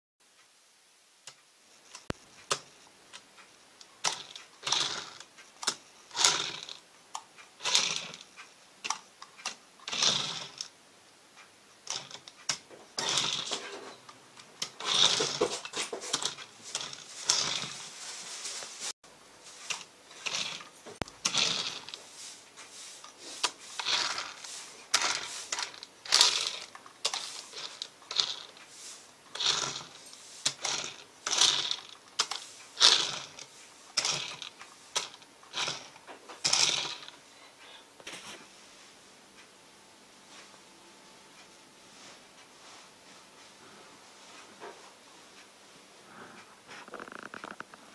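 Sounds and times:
toy car motor whirring: 4.0 - 10.7, 11.8 - 13.9, 14.6 - 17.8, 19.7 - 22.1, 23.4 - 28.7, 29.3 - 37.2.

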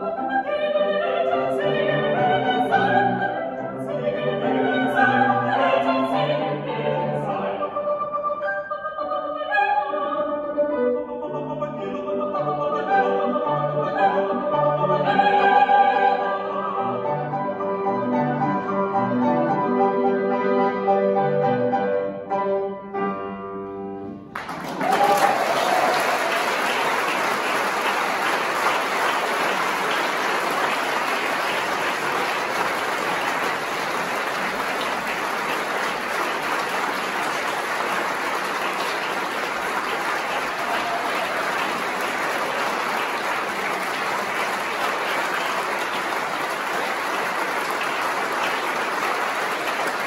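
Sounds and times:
audience applauding: 24.3 - 50.0.

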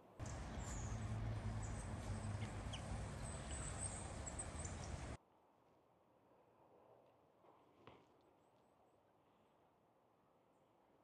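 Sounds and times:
steady low hum: 0.2 - 5.2.

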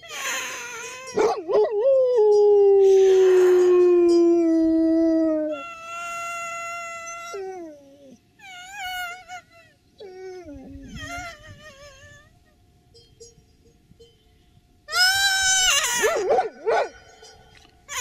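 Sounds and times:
dog howling: 1.2 - 5.8, 16.0 - 17.1.

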